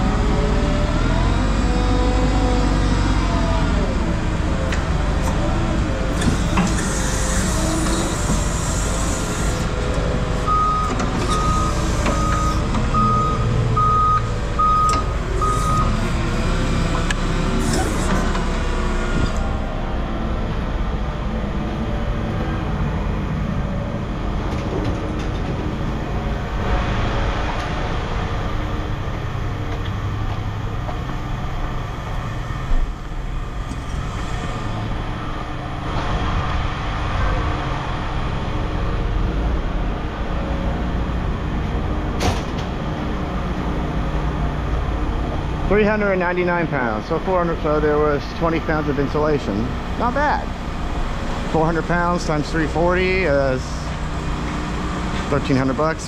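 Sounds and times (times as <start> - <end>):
forklift engine running: 0.0 - 56.0
backup alarm beeping: 10.4 - 16.0.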